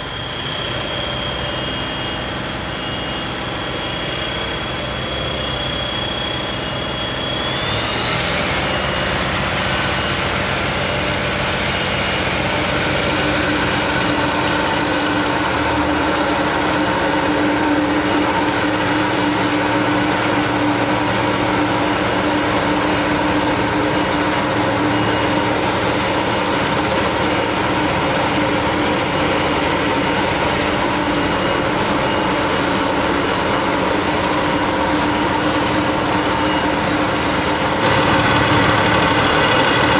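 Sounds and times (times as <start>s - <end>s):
high machine whine: 0.0s - 39.9s
strong hum: 22.4s - 39.9s.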